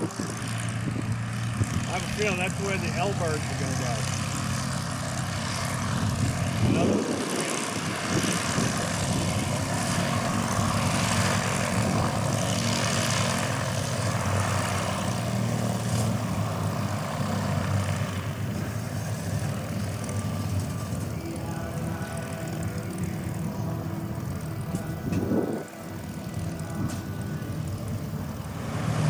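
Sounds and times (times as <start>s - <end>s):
propeller plane engine running: 0.0s - 29.0s.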